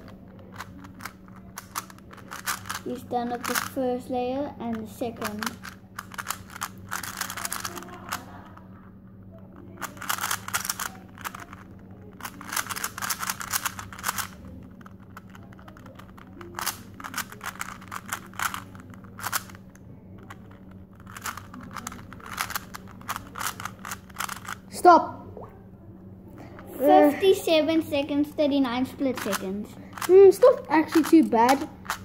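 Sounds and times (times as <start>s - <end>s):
puzzle cube clicking: 0.0s - 3.8s, 4.7s - 8.6s, 9.7s - 24.6s, 29.2s - 32.0s.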